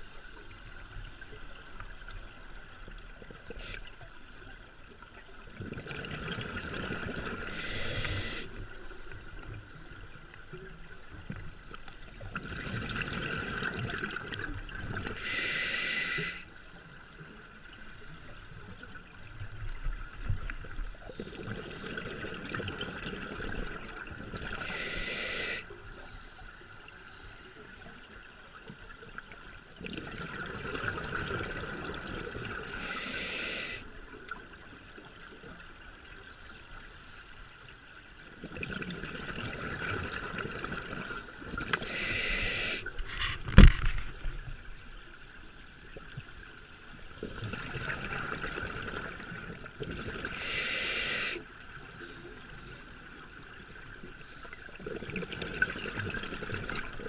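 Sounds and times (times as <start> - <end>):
exhaled bubbles: 5.6 - 8.5, 29.8 - 32.9, 54.8 - 57.0
regulator breathing hiss: 7.5 - 8.6, 15.2 - 16.5, 24.6 - 26.4, 32.7 - 33.9, 41.8 - 43.0, 50.4 - 51.4.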